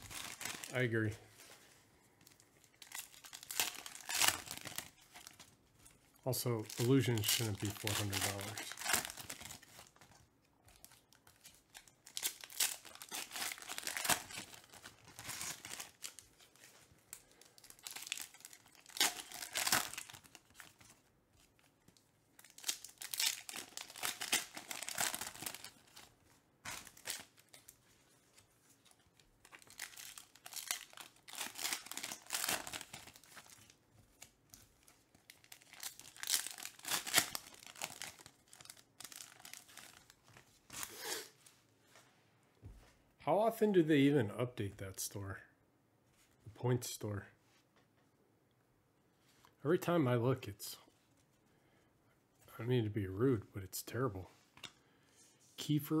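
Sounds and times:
foil wrappers crinkling and tearing: 0.0s - 1.1s, 2.3s - 21.7s, 22.4s - 26.1s, 26.7s - 27.8s, 28.7s - 41.2s.

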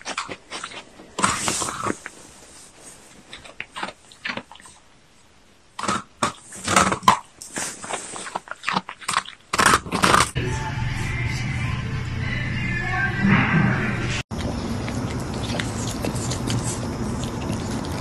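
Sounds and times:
dog licking and chewing: 0.0s - 5.0s, 5.8s - 10.2s, 14.3s - 18.0s
music: 10.4s - 14.2s.

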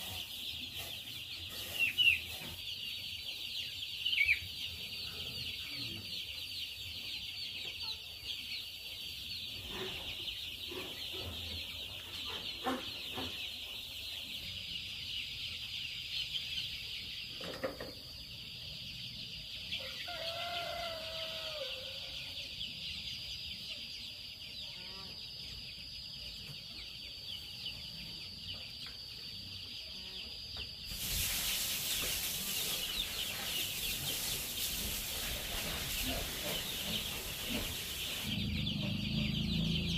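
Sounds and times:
chicks peeping: 0.0s - 39.9s
rooster crowing: 19.8s - 22.3s.

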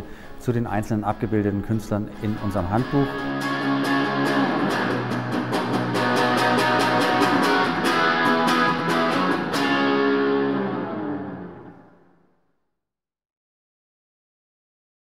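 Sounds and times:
electric guitar music: 2.0s - 12.2s.

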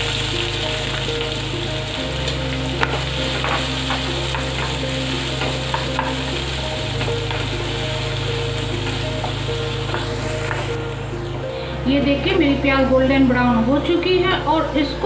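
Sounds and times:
onions sizzling in oil: 0.0s - 11.5s.

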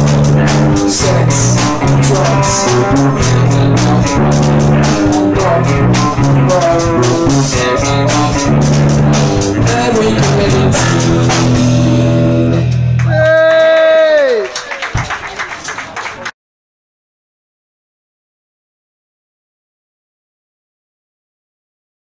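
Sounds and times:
electric guitar: 0.0s - 13.7s
drum kit: 0.0s - 14.2s
bass guitar: 0.0s - 14.4s.

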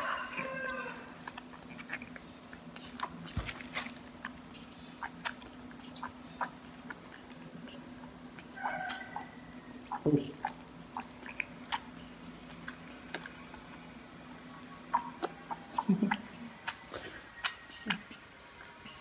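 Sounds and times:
steady low hum: 0.0s - 19.0s
small wet sucking clicks: 10.4s - 13.9s.

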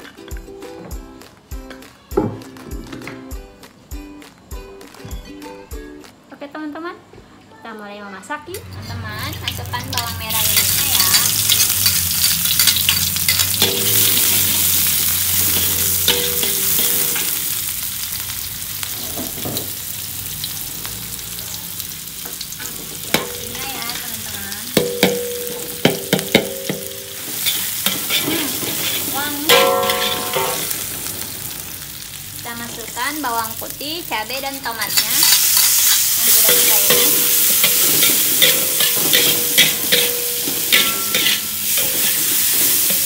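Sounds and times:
metal spatula scraping a wok: 8.7s - 17.6s, 26.7s - 31.7s, 34.8s - 43.0s
shallots sizzling in hot oil: 8.7s - 43.0s.

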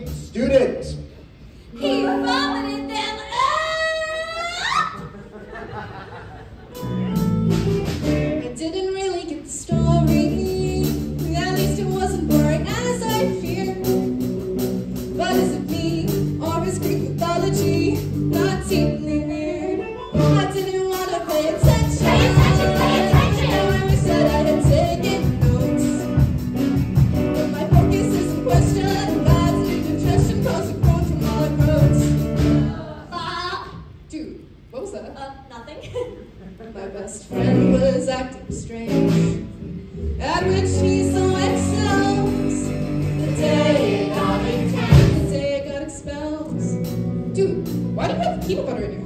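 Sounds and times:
drums: 0.0s - 2.2s, 4.7s - 19.2s, 20.0s - 34.0s, 37.3s - 49.0s
rock band playing: 6.8s - 8.6s, 9.7s - 18.9s, 20.1s - 32.9s, 38.9s - 45.5s, 46.6s - 49.0s
people singing: 21.0s - 26.2s, 40.8s - 45.6s.

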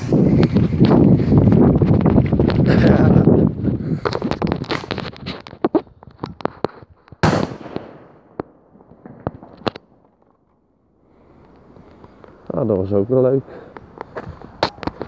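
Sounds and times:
firework pops and crackles: 3.9s - 10.3s, 13.8s - 15.0s
firework bang: 7.2s - 9.5s.

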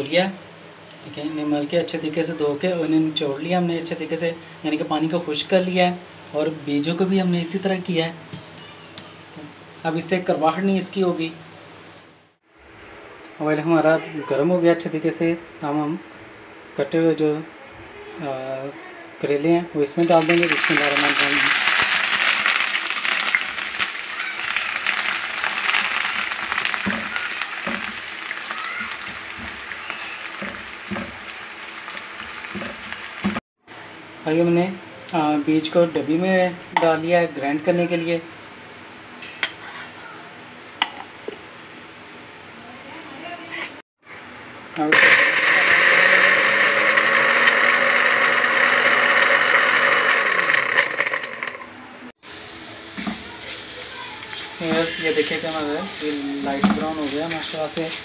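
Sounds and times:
vegetables sizzling in hot oil: 19.9s - 33.4s, 52.3s - 58.0s
electric grinder motor running: 20.0s - 31.4s, 44.9s - 51.7s
spatula knocking in pan: 30.3s - 31.2s.

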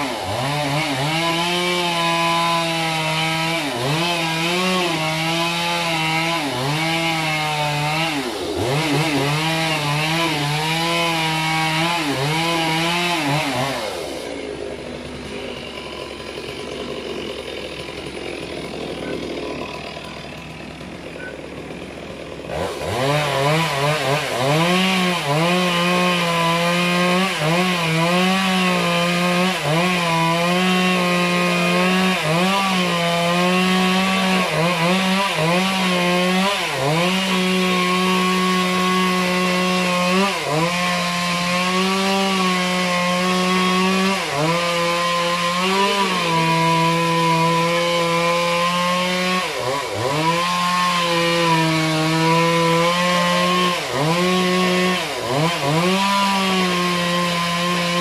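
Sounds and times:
chainsaw cutting wood: 0.0s - 58.0s.

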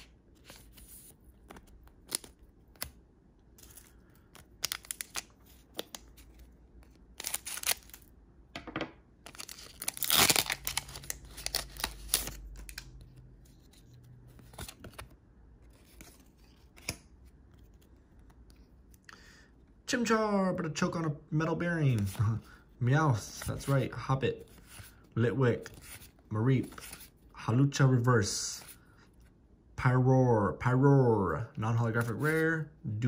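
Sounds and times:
wrapper ripping: 7.1s - 8.1s, 9.3s - 12.9s
foil wrapper crinkling: 9.3s - 12.8s.

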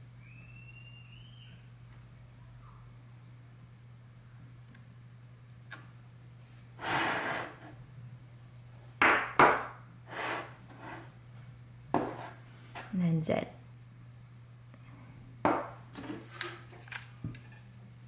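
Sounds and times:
faint low hum: 0.0s - 9.0s.

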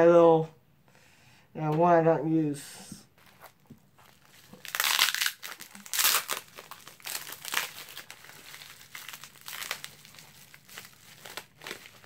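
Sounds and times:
bubble wrap crinkling: 3.1s - 12.0s.

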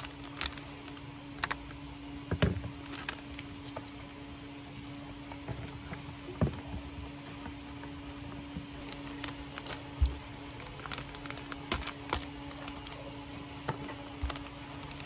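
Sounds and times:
plastic bag crinkling: 0.0s - 1.8s, 2.7s - 4.3s, 8.8s - 13.2s, 13.8s - 15.0s
faint steady hum: 0.0s - 15.0s.

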